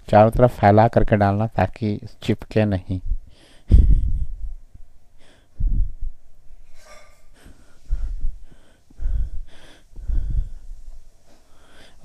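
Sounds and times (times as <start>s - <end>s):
person breathing heavily: 3.2s - 6.2s, 7.3s - 12.0s.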